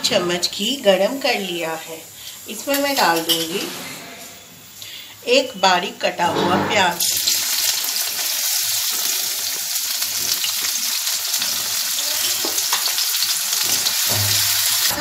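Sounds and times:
onion sizzling in hot fat: 0:07.0 - 0:15.0.

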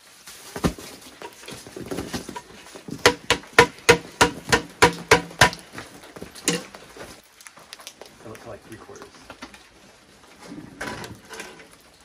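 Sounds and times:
metal pail knocking: 0:03.0 - 0:05.6.

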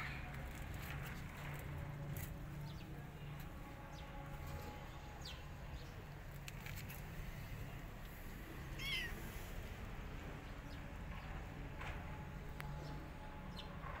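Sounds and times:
kitten meowing: 0:08.8 - 0:09.2.

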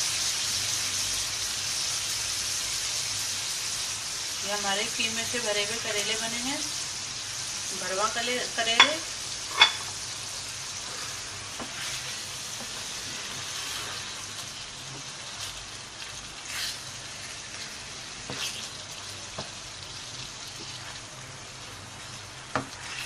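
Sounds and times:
vegetables sizzling in a wok: 0:00.0 - 0:23.0
spatula scraping a pan: 0:10.8 - 0:14.3.

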